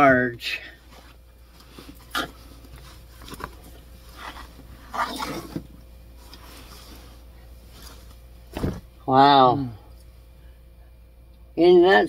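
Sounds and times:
stiff fabric rustling: 0.8 - 9.0.

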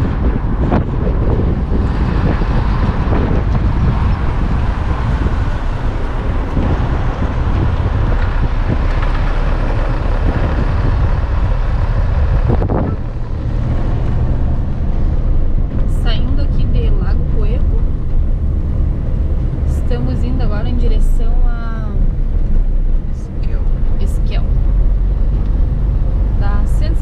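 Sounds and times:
car engine and tyre rumble: 0.0 - 27.0
wind noise: 0.0 - 27.0.

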